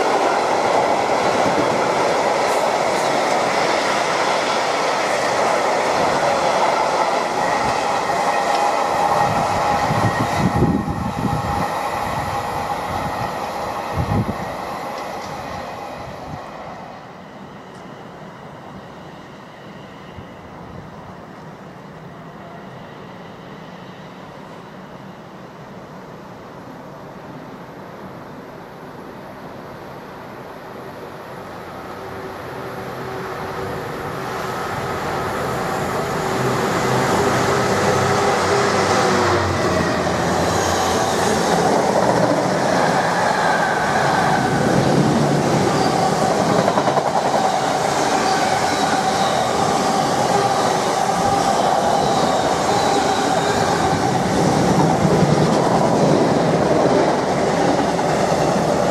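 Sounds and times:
freight train rolling past: 0.0s - 58.9s
diesel locomotive engine hum: 17.0s - 58.9s.

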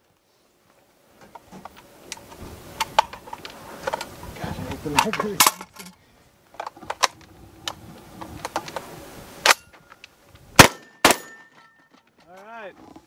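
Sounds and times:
loud sharp crack: 10.6s - 11.6s.

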